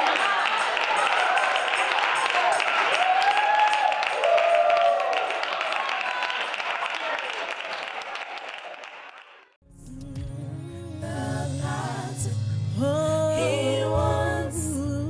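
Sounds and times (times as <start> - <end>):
people cheering and whooping: 0.0 - 8.9
audience applauding: 0.0 - 9.6.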